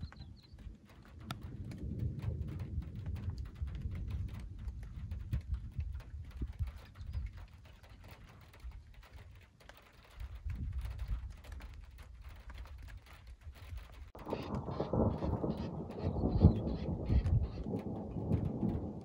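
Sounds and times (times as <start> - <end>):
faint clicks: 0.0 - 19.0
distant thunder rumbling: 0.6 - 6.9, 14.1 - 19.0.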